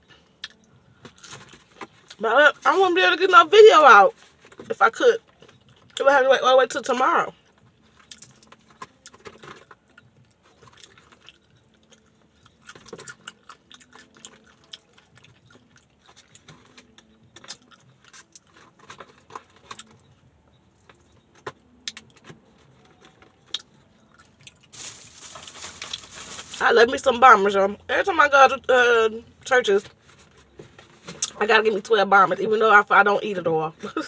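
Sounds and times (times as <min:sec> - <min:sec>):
chewing crispy fried food: 0:05.2 - 0:06.0, 0:07.4 - 0:20.1, 0:22.8 - 0:26.6
paper food box rustling: 0:24.6 - 0:26.6.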